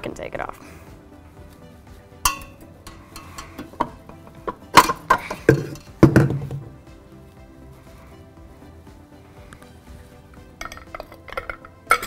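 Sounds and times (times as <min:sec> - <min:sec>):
metallic clink: 0:02.3 - 0:06.0
clanks and knocks: 0:02.3 - 0:06.7.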